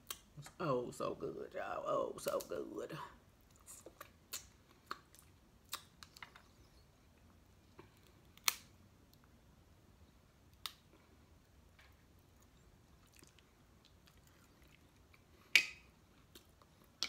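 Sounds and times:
crab shells cracking: 0:08.0 - 0:08.7.

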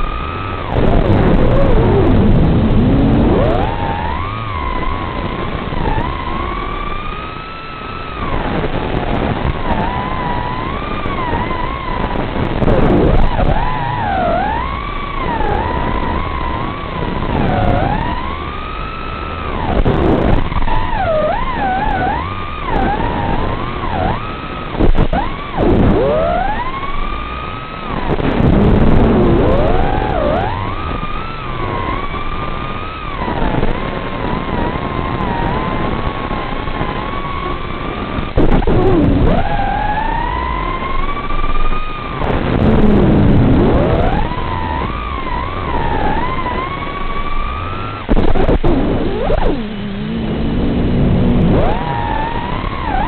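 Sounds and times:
quadcopter motors whining: 0:00.0 - 0:53.0
loud burst of crackling: 0:37.1 - 0:53.0.

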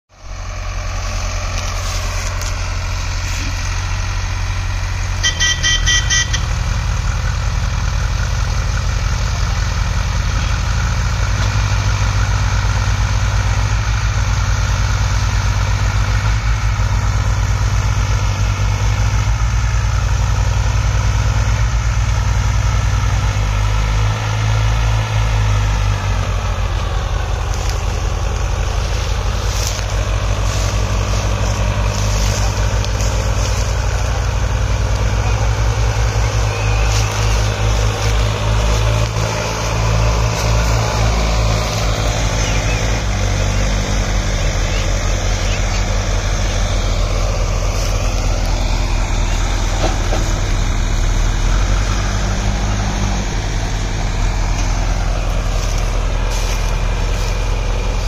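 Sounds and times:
diesel engines under heavy load: 0:00.1 - 0:58.0
vehicle horn: 0:05.0 - 0:06.8.

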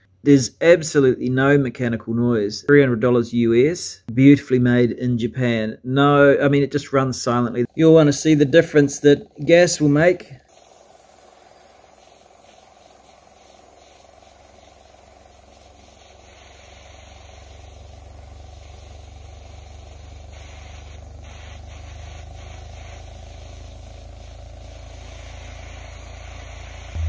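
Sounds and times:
engine low hum: 0:07.7 - 0:27.0.

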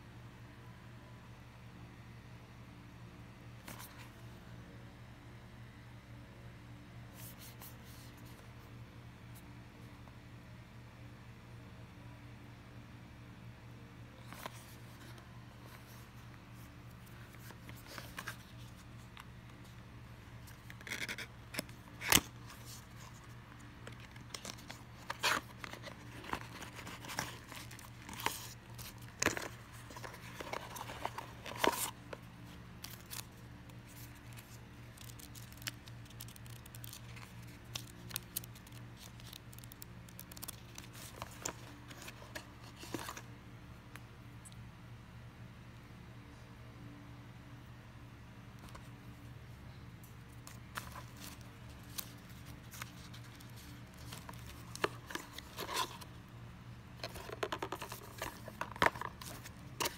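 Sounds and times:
cardboard box rustling: 0:22.0 - 0:43.2, 0:50.5 - 0:56.2, 0:57.0 - 0:59.9.

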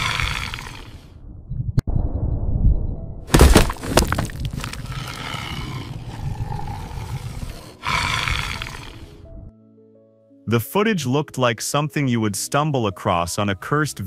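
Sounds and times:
low rumble: 0:01.1 - 0:05.0
sharp cracking crashes: 0:03.3 - 0:04.8
drawn-out animal-like call: 0:05.4 - 0:09.2.

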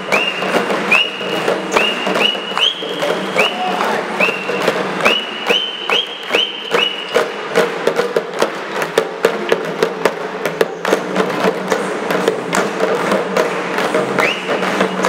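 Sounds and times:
whistle blast: 0:00.0 - 0:07.4, 0:14.2 - 0:15.0
frame drums beaten fast: 0:00.0 - 0:15.0.

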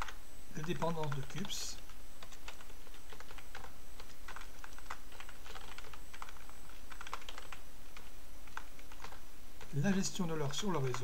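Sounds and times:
keyboard typing: 0:00.0 - 0:11.0.

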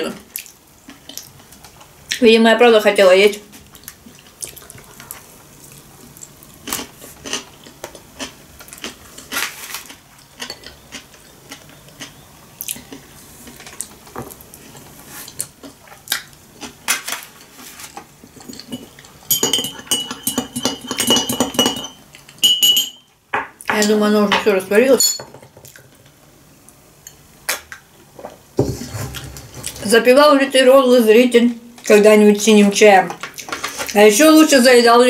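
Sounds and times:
spoon stirring in glass: 0:18.3 - 0:23.1.

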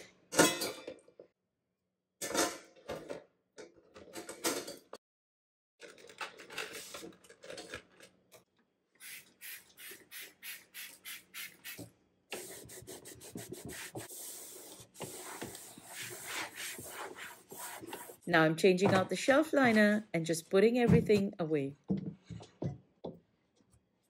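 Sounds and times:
spray bottle squirts: 0:09.0 - 0:11.8
cloth wiping a shelf: 0:12.4 - 0:18.3.

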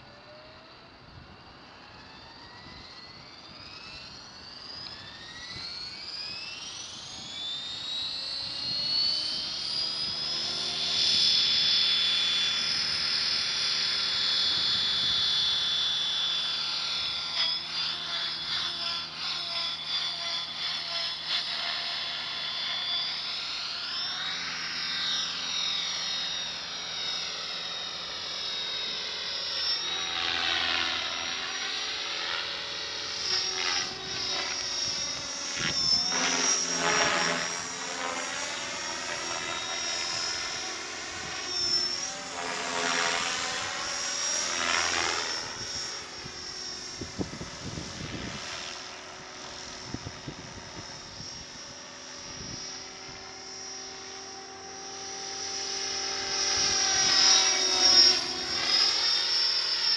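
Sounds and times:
helicopter rotor noise: 0:00.0 - 0:59.9
rc helicopter motor whine: 0:00.0 - 0:59.9
wind buffeting microphone: 0:45.4 - 0:48.6, 0:49.8 - 0:51.6.

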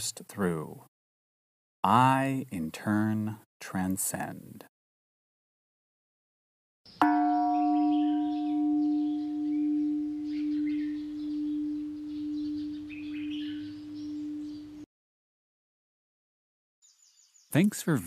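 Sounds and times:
faint high chirping: 0:06.9 - 0:14.9
singing bowl ringing: 0:07.0 - 0:14.9.

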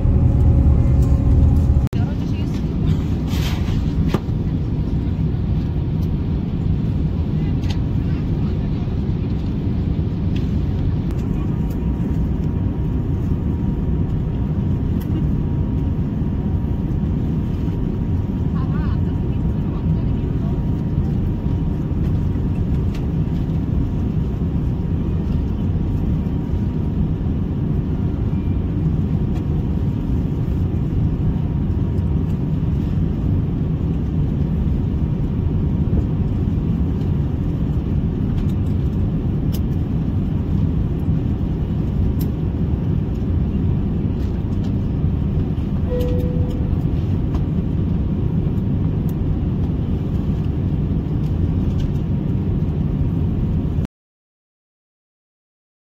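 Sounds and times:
airliner cabin engine rumble: 0:00.0 - 0:53.9
short beep: 0:45.9 - 0:46.8.

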